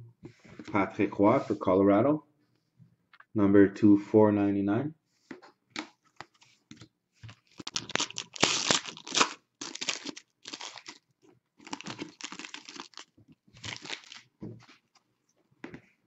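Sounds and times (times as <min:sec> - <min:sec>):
foil pack ripping and crinkling: 0:07.6 - 0:11.0, 0:11.6 - 0:14.3.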